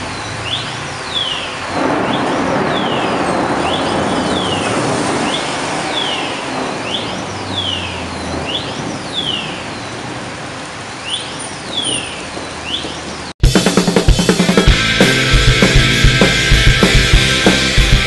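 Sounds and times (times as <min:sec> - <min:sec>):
rain: 0:00.0 - 0:13.4
traffic on wet street: 0:00.0 - 0:13.4.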